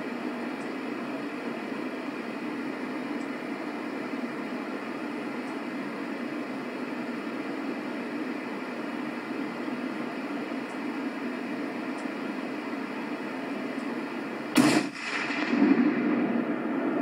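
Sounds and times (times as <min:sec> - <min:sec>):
rifle shot: 0:14.5 - 0:16.6.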